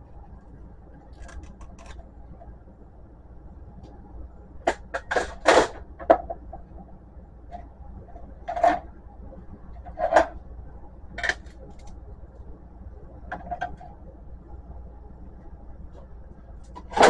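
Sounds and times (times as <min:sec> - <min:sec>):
plastic parts clicking and clattering: 0:01.1 - 0:02.0, 0:11.1 - 0:12.0.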